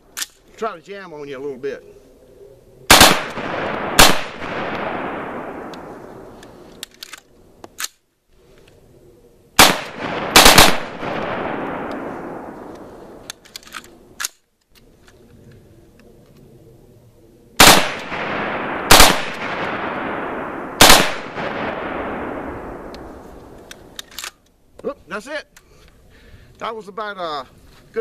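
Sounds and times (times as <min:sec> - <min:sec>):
rifle gunshots: 0:02.9 - 0:06.4, 0:09.6 - 0:13.2, 0:17.6 - 0:24.0
rolling echo of gunshots: 0:02.9 - 0:06.6, 0:09.6 - 0:13.3, 0:17.6 - 0:24.0.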